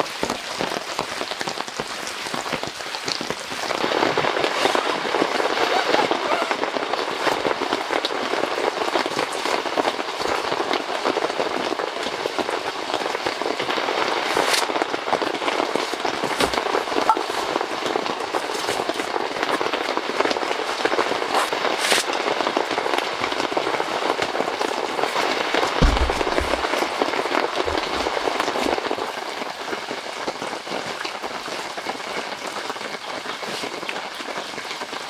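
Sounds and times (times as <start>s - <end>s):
heavy rain falling: 0.0s - 35.0s
sharp cracks: 25.6s - 29.0s.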